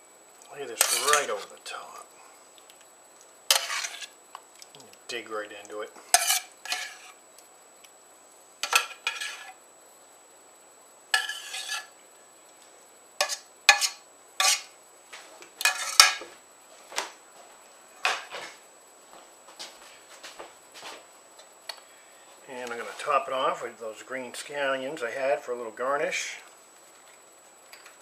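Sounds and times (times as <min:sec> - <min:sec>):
metal spoon scraping a pan: 0:00.7 - 0:01.5, 0:03.5 - 0:04.2, 0:06.1 - 0:07.2, 0:08.6 - 0:09.6, 0:11.1 - 0:12.0, 0:13.2 - 0:14.7, 0:15.6 - 0:16.2.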